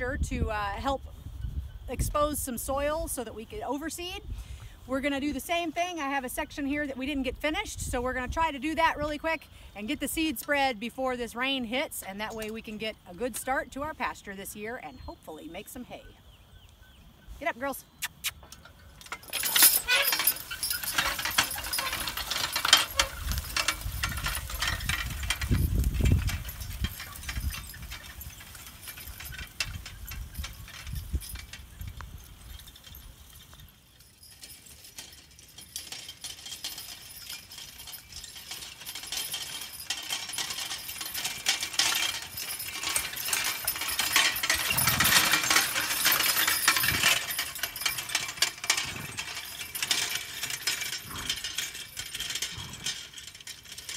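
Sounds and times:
horse-drawn harrow rattling: 0.0s - 16.3s, 17.4s - 53.9s
chains clinking: 18.1s - 53.9s.

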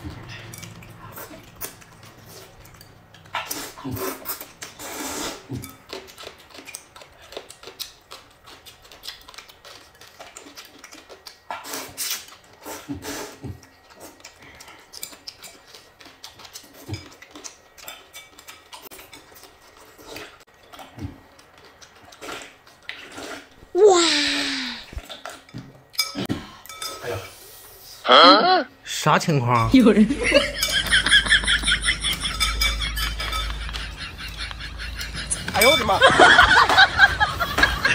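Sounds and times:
people slurping noodles: 3.3s - 7.6s, 9.8s - 15.4s, 22.0s - 25.5s
chopsticks clicking on bowls: 32.0s - 36.8s.

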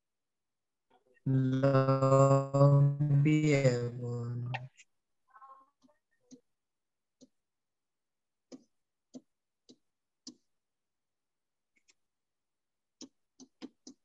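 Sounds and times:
pen tapping on touchscreen: 7.2s - 7.4s, 8.4s - 10.6s, 12.9s - 14.0s.

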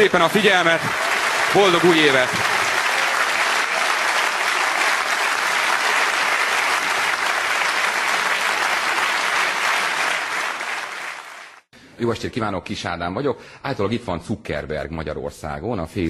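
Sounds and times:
audience applauding: 0.0s - 11.7s.

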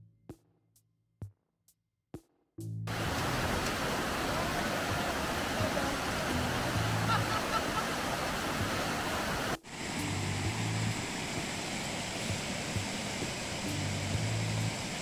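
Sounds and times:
stream rushing over rocks: 2.9s - 15.0s.

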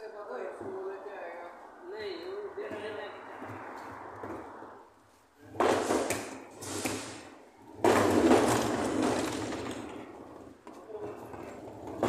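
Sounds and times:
cases rolling on concrete: 2.2s - 12.0s
small knocks and rattles: 5.5s - 12.0s.

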